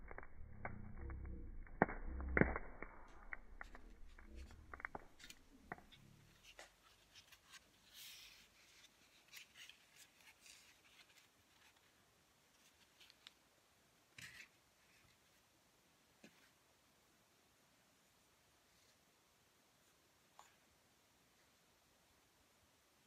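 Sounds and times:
low rumble: 0.0s - 5.9s
campfire crackling: 0.0s - 6.8s
fire popping: 0.0s - 6.8s.

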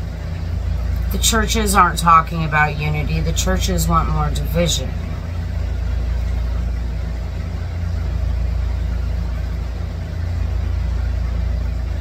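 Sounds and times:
motor humming: 0.0s - 12.0s.

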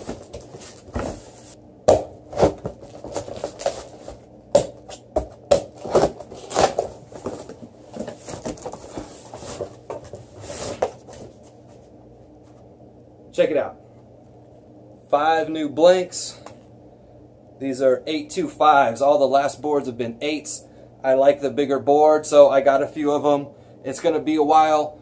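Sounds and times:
cardboard and plastic wrapping handled: 0.0s - 1.6s, 2.3s - 11.6s.

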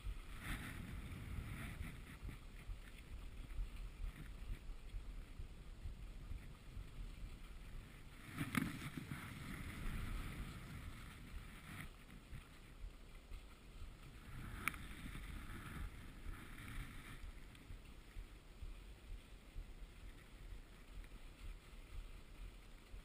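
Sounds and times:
skis scraping over snow: 0.0s - 23.0s
wind noise on microphone: 0.0s - 23.0s.

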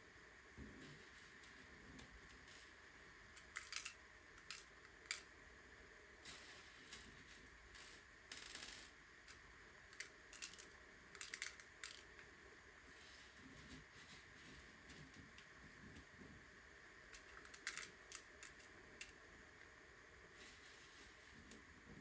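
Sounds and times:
quiet steady hiss: 0.0s - 22.0s
plastic pieces clicking together: 3.4s - 5.3s, 6.3s - 12.3s, 17.1s - 19.2s.

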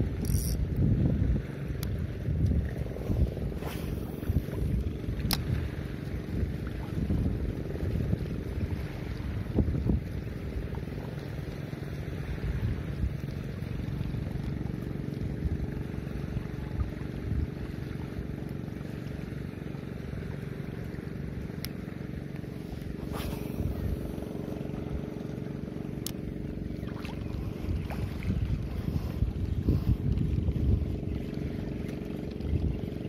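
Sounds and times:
wind buffeting microphone: 0.0s - 11.2s, 22.8s - 33.0s
steady motor hum: 0.0s - 33.0s.

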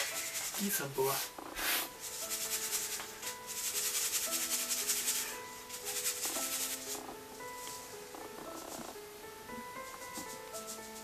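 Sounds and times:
flour rustling in metal sieve: 0.0s - 7.0s
soft background music: 0.0s - 11.0s.

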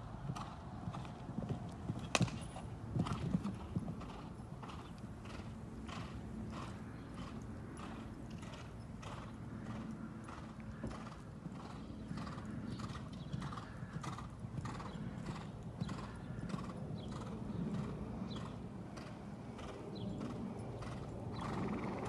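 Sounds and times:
horse cantering on sand: 0.0s - 22.0s.

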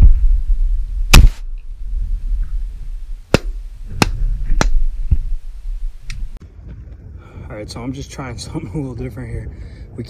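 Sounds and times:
wind rumble on microphone: 0.0s - 10.0s
shotgun shot: 1.1s - 1.4s.

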